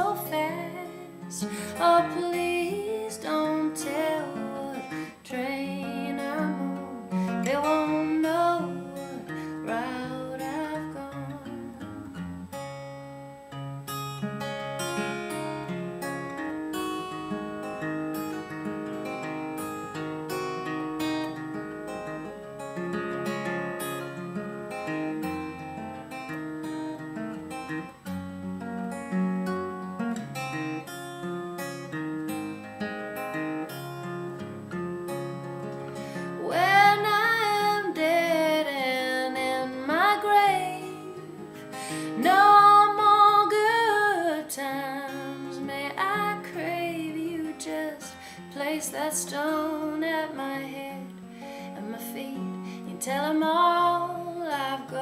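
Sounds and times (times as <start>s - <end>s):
person singing: 0.0s - 12.0s, 36.2s - 51.1s, 51.8s - 55.0s
acoustic guitar picking: 0.0s - 55.0s.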